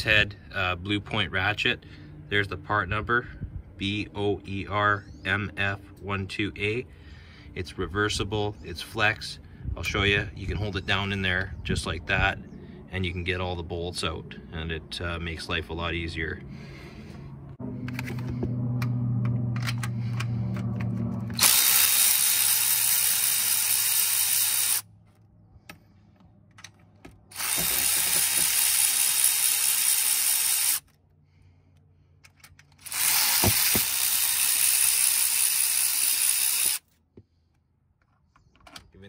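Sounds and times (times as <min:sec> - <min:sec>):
power ratchet running: 0:19.9 - 0:24.8, 0:27.3 - 0:30.9, 0:32.7 - 0:36.9.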